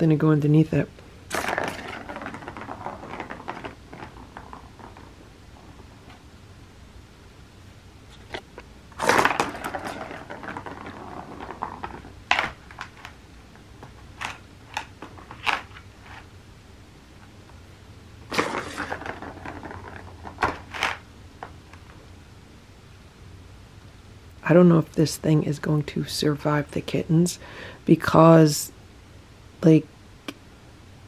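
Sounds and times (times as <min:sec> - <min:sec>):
plastic ball rolling and rattling: 0:01.3 - 0:06.3, 0:08.1 - 0:16.3, 0:18.2 - 0:22.0.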